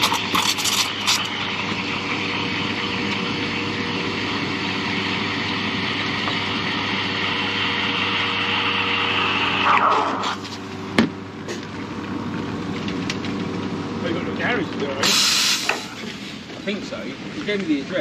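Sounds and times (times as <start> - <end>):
espresso machine hum: 0.0 - 12.6
espresso machine hiss: 15.0 - 16.0.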